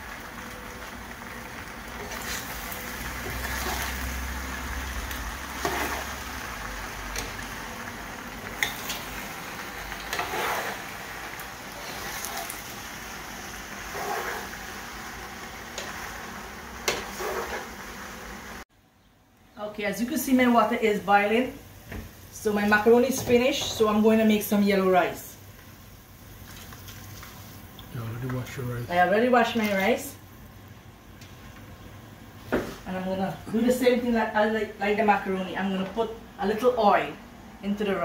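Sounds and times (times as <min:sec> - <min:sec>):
frying sizzle: 0:00.0 - 0:18.7, 0:19.7 - 0:38.0
metal spoon scraping a pot: 0:10.0 - 0:10.8, 0:13.9 - 0:14.5, 0:16.9 - 0:17.7.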